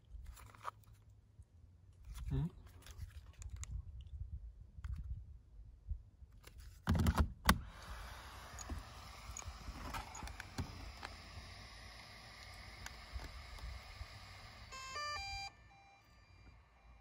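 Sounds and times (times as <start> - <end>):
faint hiss: 7.6 - 17.0.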